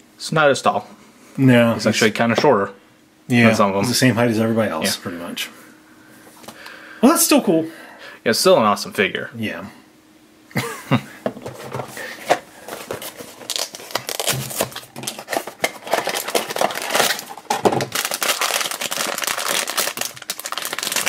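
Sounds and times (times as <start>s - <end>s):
foil bag crinkling and tearing: 12.6s - 21.0s.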